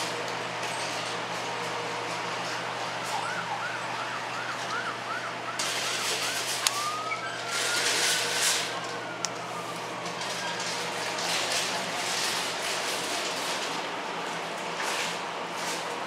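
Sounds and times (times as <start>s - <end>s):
emergency vehicle siren: 1.2s - 13.4s.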